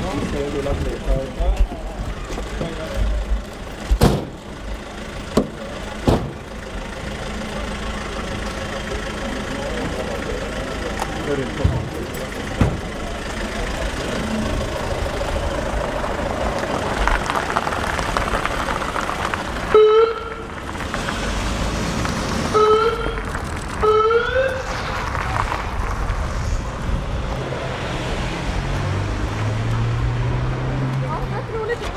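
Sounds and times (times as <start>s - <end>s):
street traffic noise: 0.0s - 31.9s.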